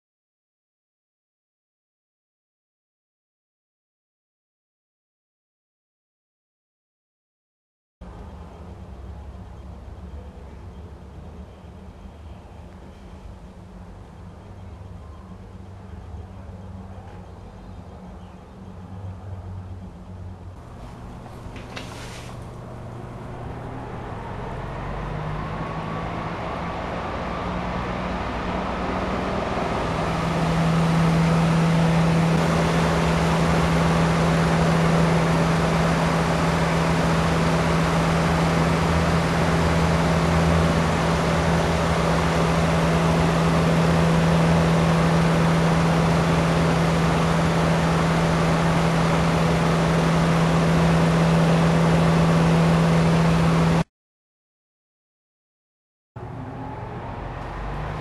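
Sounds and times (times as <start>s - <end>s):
electric fan rushing air: 20.2s - 53.9s.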